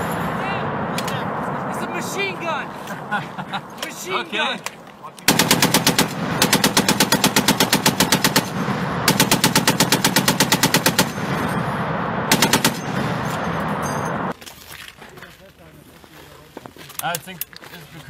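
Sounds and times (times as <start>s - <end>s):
heavy machine gun bursts: 5.3s - 11.4s, 12.3s - 14.2s.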